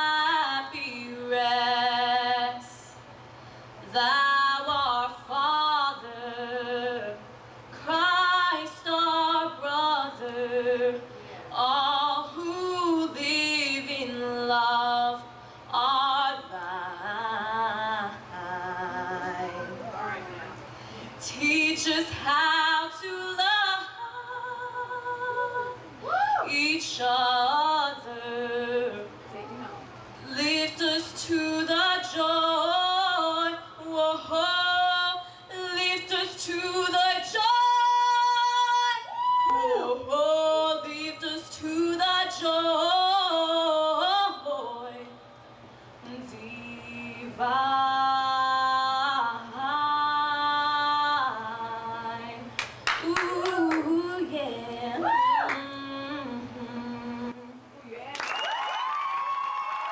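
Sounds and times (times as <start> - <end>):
girl singing into microphone: 21.2 - 45.2, 46.0 - 57.8.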